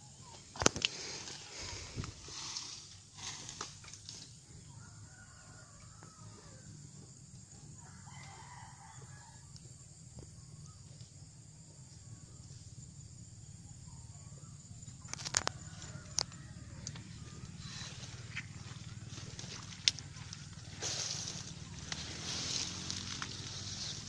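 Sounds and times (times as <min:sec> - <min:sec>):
crackling rustle of dry fronds: 0:00.3 - 0:05.7, 0:15.0 - 0:24.0
faint rooster crowing: 0:04.6 - 0:10.8, 0:13.8 - 0:24.0.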